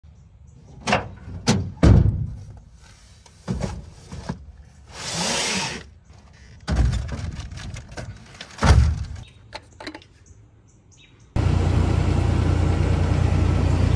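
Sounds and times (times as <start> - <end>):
boxes thumping into truck bed: 0.9 - 2.5, 6.7 - 9.2
box scraping across truck bed: 2.3 - 7.0.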